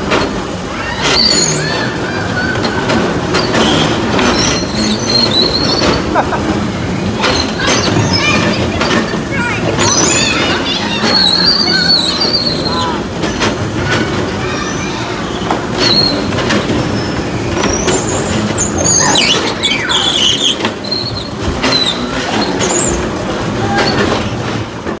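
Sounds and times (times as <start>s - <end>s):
children playing: 0.0s - 25.0s
children shrieking and squealing: 0.6s - 24.3s.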